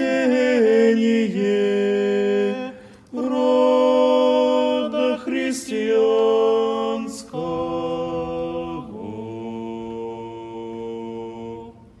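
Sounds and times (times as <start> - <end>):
men chanting a cappella: 0.0 - 12.0.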